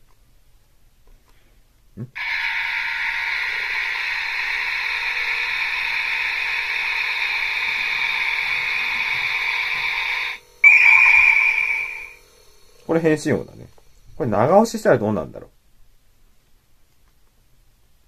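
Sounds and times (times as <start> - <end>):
toy speaker wind-like hiss: 2.1 - 15.4.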